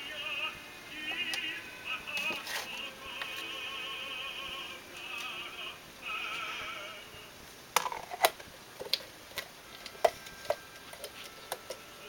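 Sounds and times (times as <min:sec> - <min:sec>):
operatic singing: 0:00.0 - 0:07.3
plastic tubs and lids clicking: 0:02.2 - 0:03.4, 0:07.8 - 0:11.8.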